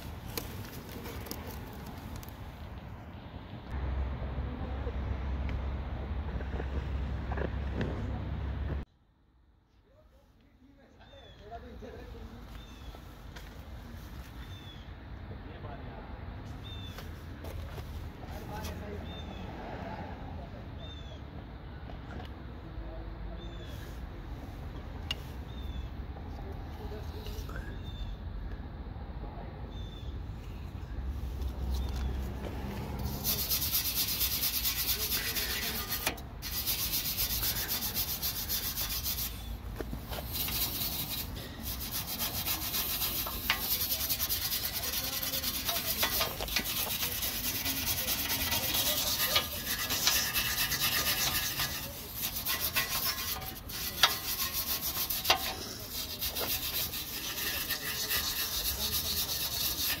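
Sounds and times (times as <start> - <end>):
wire brush scrubbing metal: 32.9 - 60.0.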